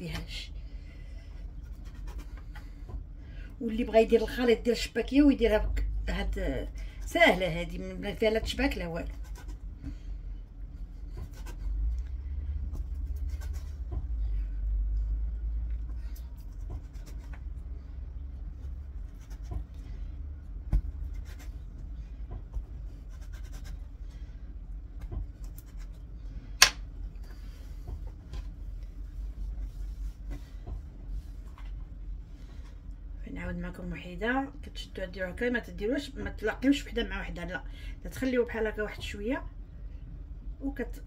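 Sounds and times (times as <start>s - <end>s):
dough handling scratches and taps: 10.8s - 12.0s, 15.6s - 32.7s.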